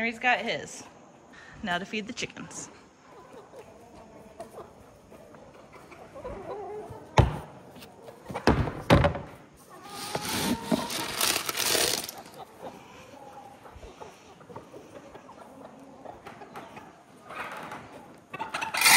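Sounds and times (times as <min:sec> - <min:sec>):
scoop digging into feed pellets: 0:09.8 - 0:12.4.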